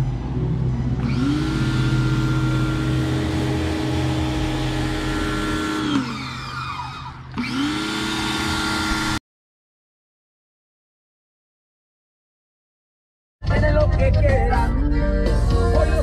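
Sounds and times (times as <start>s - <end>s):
pressure washer motor running: 1.0s - 9.2s.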